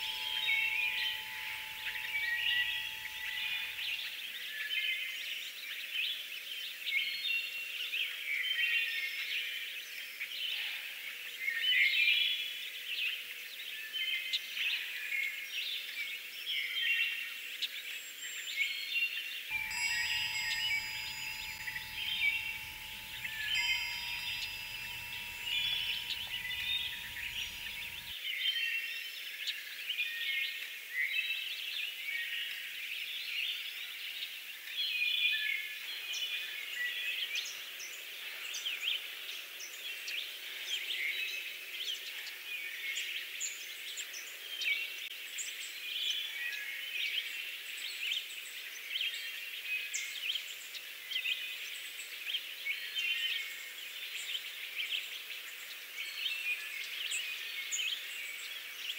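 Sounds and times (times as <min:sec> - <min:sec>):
birds chirping: 0:00.0 - 0:04.2, 0:19.5 - 0:28.1.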